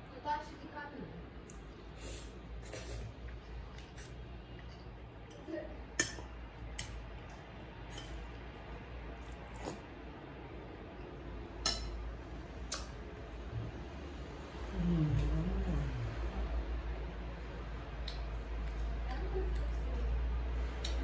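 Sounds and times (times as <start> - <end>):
spoon clinking against a bowl: 5.2 - 7.0, 11.6 - 12.0.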